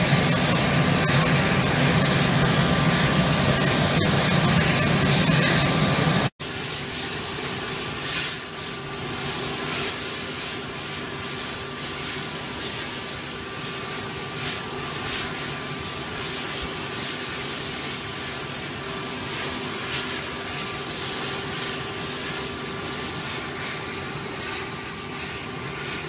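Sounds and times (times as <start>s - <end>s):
aircraft engine noise: 0.0s - 26.0s.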